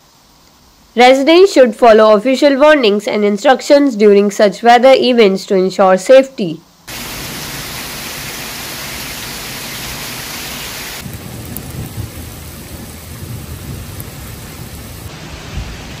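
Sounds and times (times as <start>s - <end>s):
heavy rain pouring on pavement: 6.9s - 16.0s
thunder rumbling: 6.9s - 16.0s.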